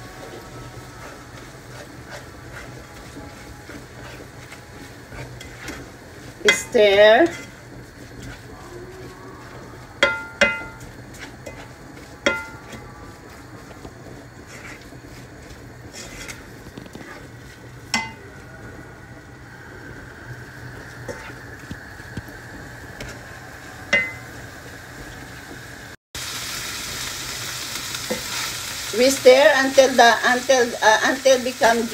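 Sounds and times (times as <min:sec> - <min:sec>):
meat sizzling in a frying pan: 0:00.0 - 0:31.9
spatula clinking against pan: 0:10.0 - 0:11.6, 0:12.2 - 0:12.8, 0:23.9 - 0:24.2.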